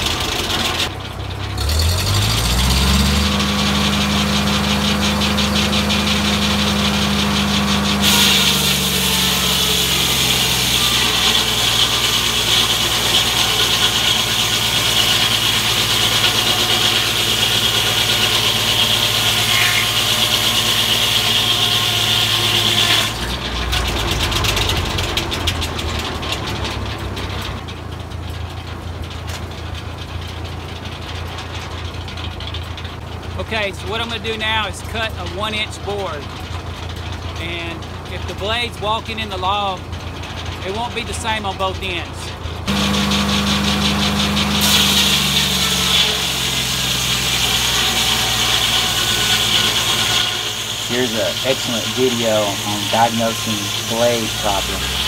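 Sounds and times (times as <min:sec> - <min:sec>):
tractor engine revving: 0:00.0 - 0:55.0
saw blade cutting log: 0:01.6 - 0:25.2, 0:42.7 - 0:55.0.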